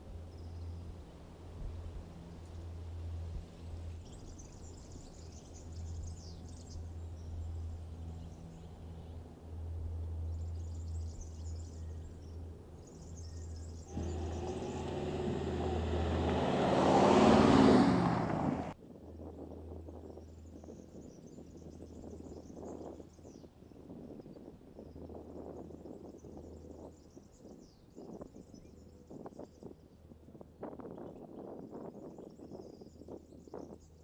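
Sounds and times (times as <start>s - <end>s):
engine running at a low hum: 0.0s - 27.4s
tyres on loose dirt: 13.9s - 18.8s.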